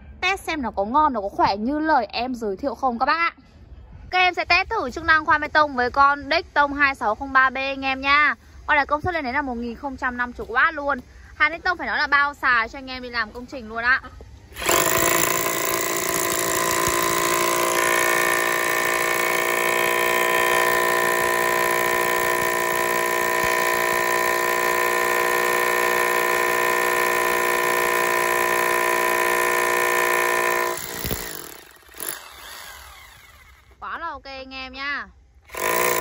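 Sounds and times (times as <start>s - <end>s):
hammer drill boring into concrete: 14.6s - 33.8s, 35.5s - 36.0s.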